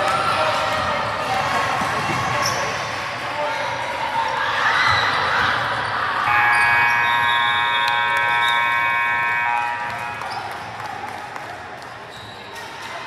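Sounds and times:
scoreboard buzzer blast: 0:06.3 - 0:10.6
gym noise: 0:06.3 - 0:10.8.

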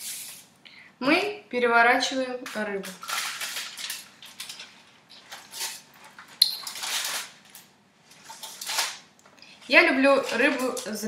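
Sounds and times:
aluminium foil crinkling: 0:02.5 - 0:11.0.

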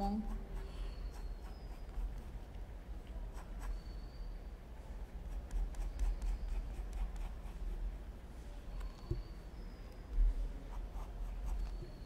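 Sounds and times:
pencil scratching on paper: 0:00.2 - 0:02.4, 0:05.3 - 0:07.7.

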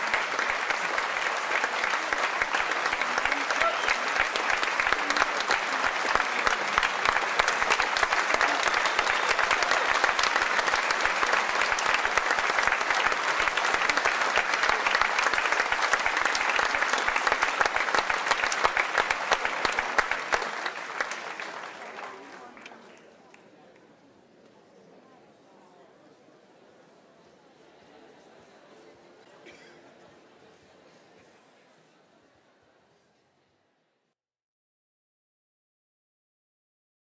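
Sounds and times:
audience applauding: 0:00.0 - 0:23.0.

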